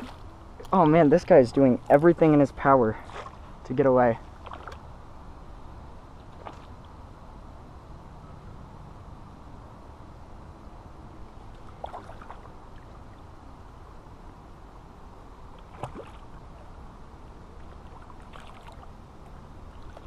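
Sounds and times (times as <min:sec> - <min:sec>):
fish splashing: 0:11.5 - 0:13.0, 0:15.6 - 0:16.8, 0:17.6 - 0:19.0.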